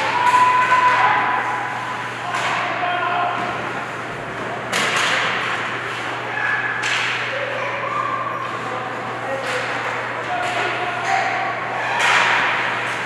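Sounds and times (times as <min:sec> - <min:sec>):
players shouting: 0:00.0 - 0:03.7.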